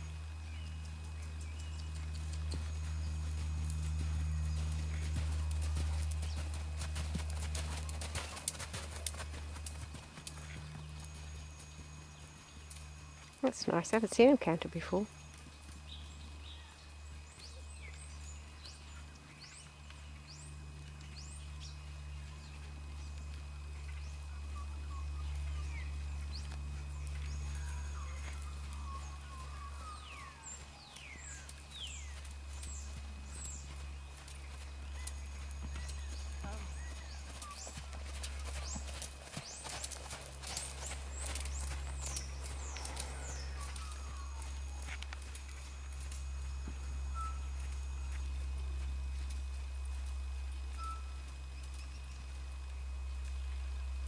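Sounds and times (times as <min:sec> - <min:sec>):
steady low rumble: 0:00.0 - 0:14.5, 0:15.2 - 0:54.0
steady low hum: 0:00.0 - 0:54.0
wild birds chirping: 0:00.0 - 0:54.0
horse hoofbeats on sand: 0:00.5 - 0:14.1, 0:25.4 - 0:51.0.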